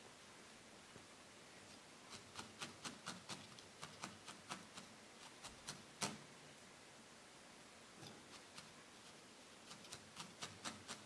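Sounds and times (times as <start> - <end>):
felting needles stabbing wool: 2.1 - 6.3, 9.6 - 11.0.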